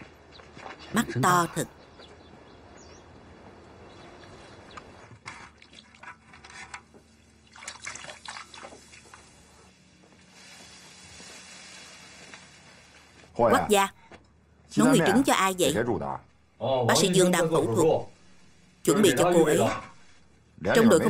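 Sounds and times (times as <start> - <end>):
ladle stirring liquid: 5.2 - 9.3
liquid pouring and splashing: 5.3 - 9.4, 10.2 - 13.2.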